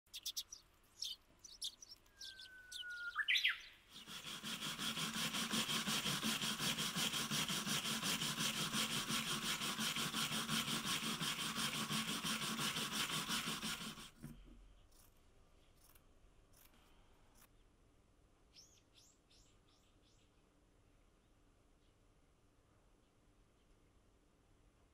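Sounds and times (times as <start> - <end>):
bird whistling and chirping: 0.1 - 3.8
brush scrubbing wooden board: 3.9 - 14.2.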